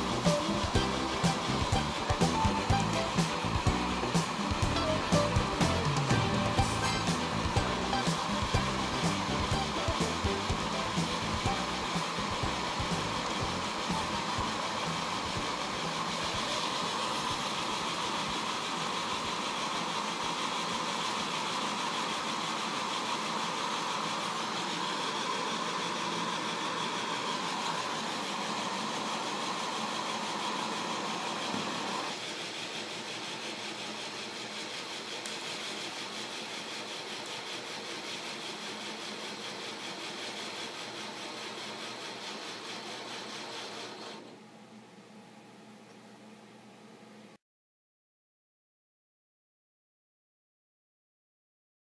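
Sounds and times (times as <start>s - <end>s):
steam hissing: 0.0s - 32.5s
gas burner roaring: 0.0s - 44.4s.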